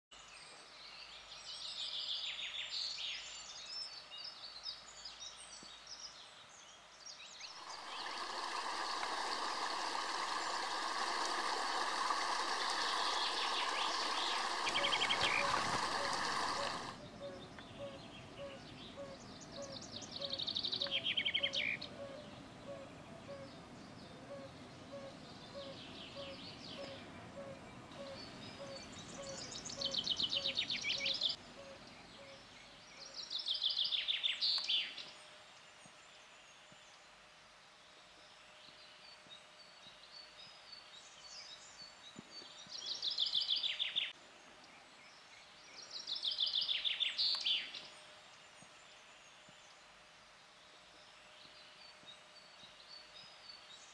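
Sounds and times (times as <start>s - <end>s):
wild birds singing: 0.2s - 53.9s
rushing stream water: 7.5s - 17.0s.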